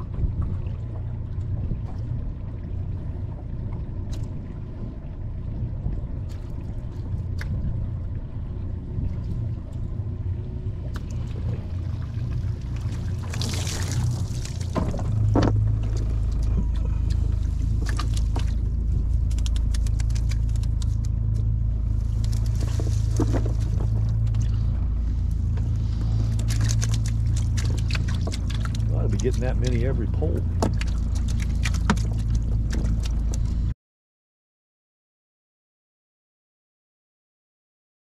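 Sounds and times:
low rumble: 0.0s - 33.7s
water pouring off net: 12.9s - 15.0s.

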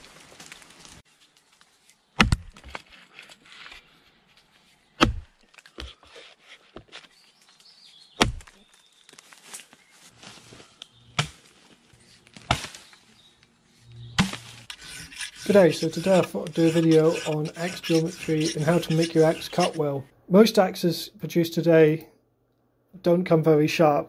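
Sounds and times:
axe chopping log: 2.2s - 2.8s, 5.0s - 5.9s, 8.2s - 8.6s, 11.2s - 11.5s, 12.4s - 12.9s, 14.2s - 14.7s.

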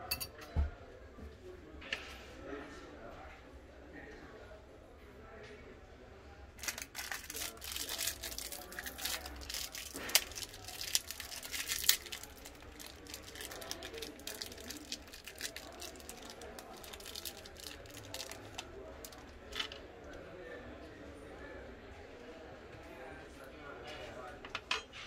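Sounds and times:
plastic bag crinkling: 6.6s - 19.8s.

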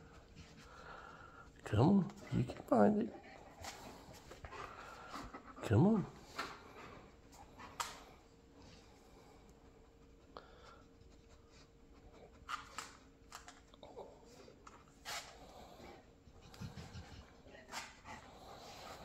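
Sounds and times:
faint steady hum: 0.0s - 19.0s
dog sniffing: 15.0s - 19.0s.

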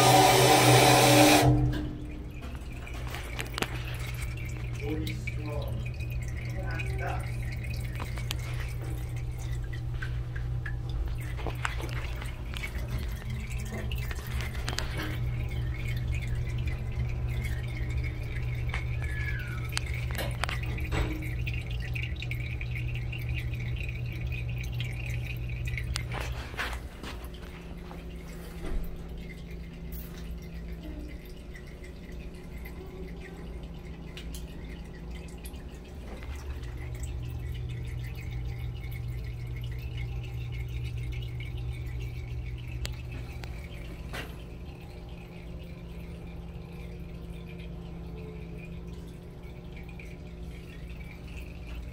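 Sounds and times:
faint machinery whine: 0.0s - 51.9s.

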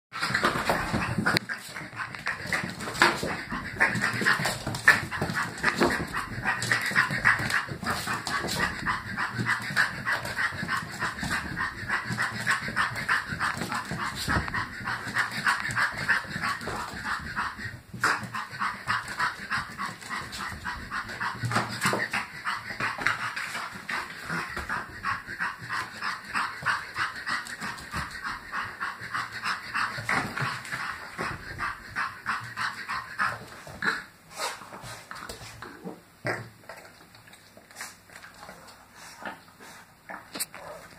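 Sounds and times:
puppy panting and snorting: 0.2s - 40.9s.

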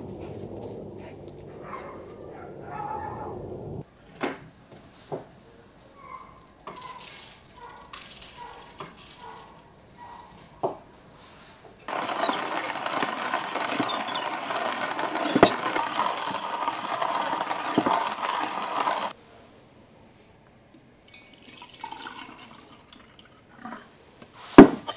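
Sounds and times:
coffee beans rattling: 6.1s - 9.6s, 11.9s - 19.2s
coffee mill grinding beans: 11.9s - 19.2s.

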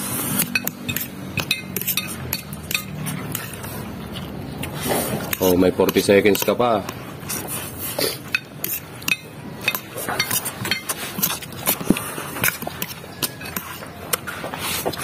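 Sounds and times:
fork scraping a plate: 0.0s - 15.0s
slurping noodles: 3.0s - 5.6s, 7.2s - 9.0s, 9.8s - 15.0s.

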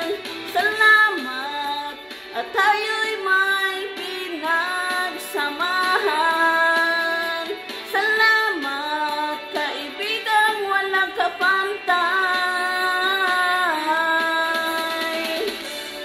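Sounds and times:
woman singing a slow ballad: 0.0s - 15.8s.

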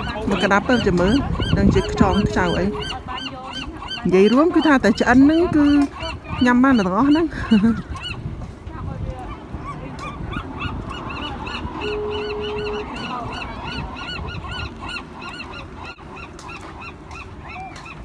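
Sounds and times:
flock of birds calling: 0.0s - 18.0s
brief steady tone: 11.8s - 13.1s.

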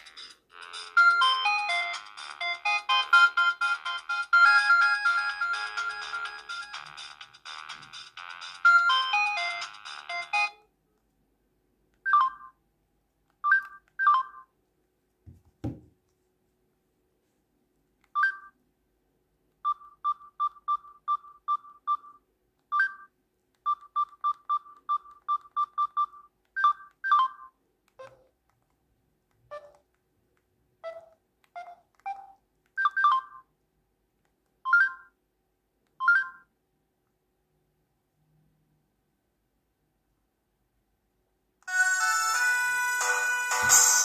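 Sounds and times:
phone key beeps: 13.4s - 14.5s, 18.1s - 18.6s, 19.6s - 28.3s, 29.5s - 29.8s, 30.8s - 33.4s.

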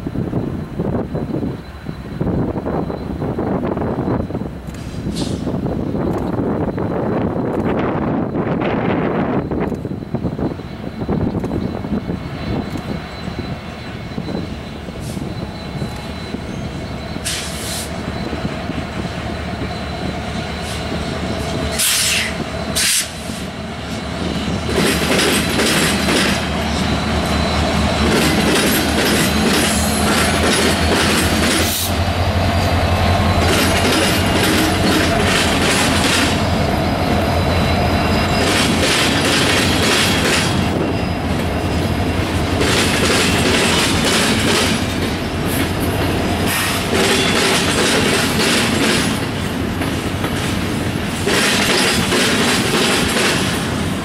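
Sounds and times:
rail hiss: 0.0s - 9.0s, 10.5s - 54.0s
locomotive engine drone: 0.0s - 54.0s
train wheels clicking: 4.2s - 54.0s
wheel squeal: 8.2s - 45.0s, 46.4s - 49.2s.

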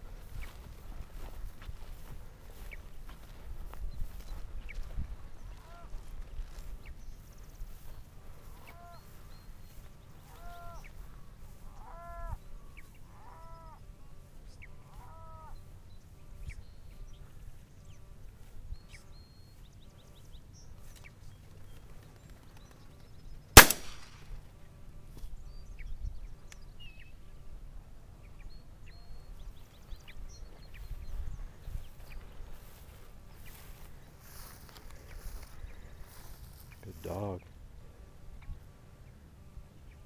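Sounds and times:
shotgun blast: 23.6s - 24.3s.

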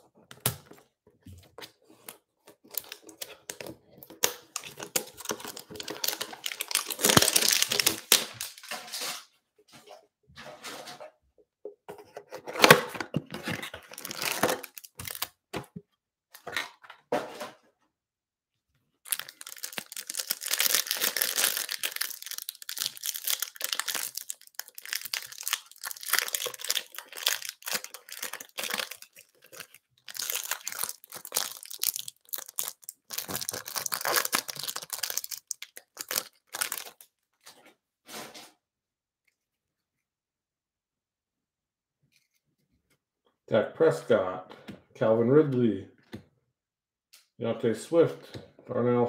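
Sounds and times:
plastic wrapper crinkling: 2.6s - 8.8s, 13.3s - 15.4s, 19.0s - 37.1s
cardboard box being torn open: 12.5s - 15.3s.

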